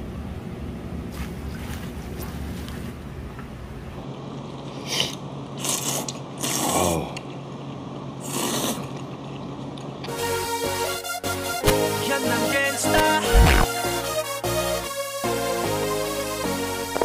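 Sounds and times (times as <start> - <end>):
low steady hum: 0.0 - 5.6
people slurping noodles: 4.8 - 7.3, 8.2 - 9.2.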